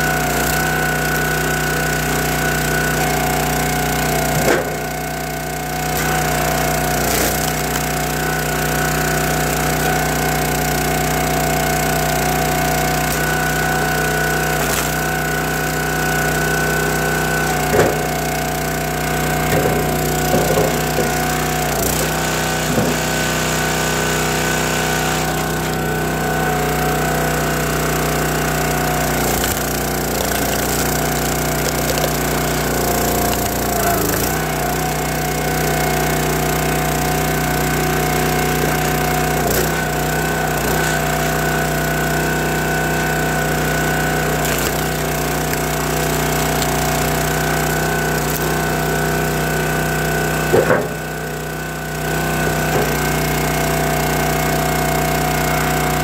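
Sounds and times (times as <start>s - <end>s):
hydraulic ram splitting wood: 0.0s - 56.0s
small gas engine running: 0.0s - 56.0s
wood cracking: 0.1s - 23.1s, 27.6s - 41.8s, 43.5s - 49.2s.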